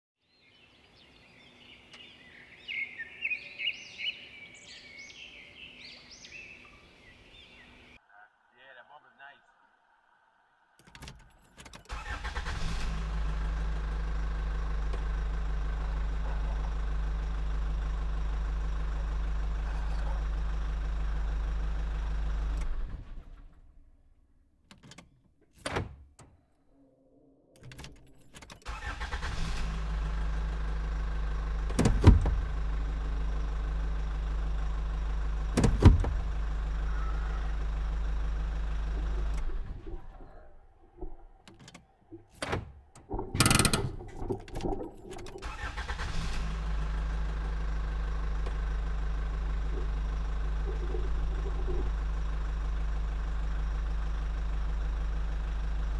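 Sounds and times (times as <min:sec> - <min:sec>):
truck engine idling: 0:11.9 - 0:24.5, 0:28.0 - 0:55.9.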